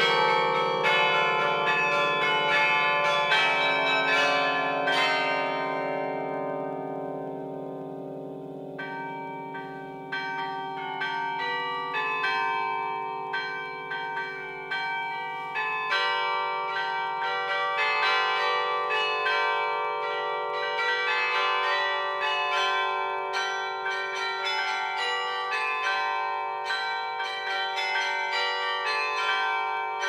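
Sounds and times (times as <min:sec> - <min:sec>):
carillon bells playing: 0:00.0 - 0:06.0.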